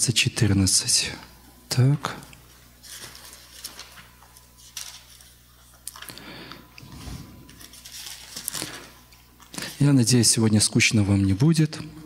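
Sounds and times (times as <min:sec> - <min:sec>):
pages turning: 0:02.8 - 0:06.2, 0:06.8 - 0:09.8.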